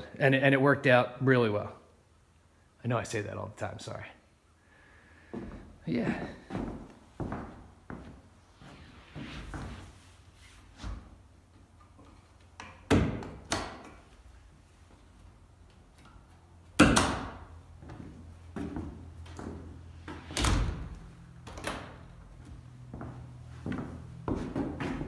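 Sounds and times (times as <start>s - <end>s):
door bolts and latch clicking: 12.6s - 14.0s, 16.8s - 17.4s.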